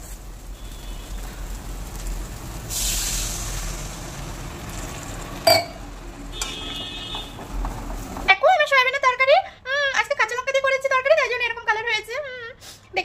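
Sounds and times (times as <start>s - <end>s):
water hissing in hot pan: 0.0s - 6.4s
sharp metal clink: 5.5s - 5.8s.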